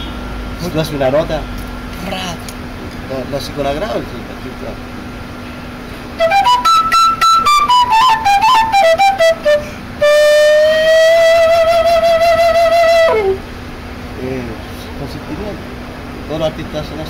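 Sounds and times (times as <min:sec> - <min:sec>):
wooden flute playing: 0:06.1 - 0:13.5.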